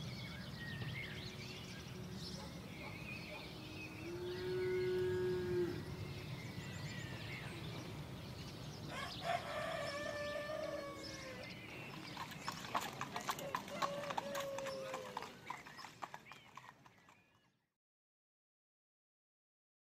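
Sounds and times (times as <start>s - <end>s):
cow mooing: 4.0s - 5.9s
rooster crowing: 8.9s - 11.4s, 13.4s - 15.2s.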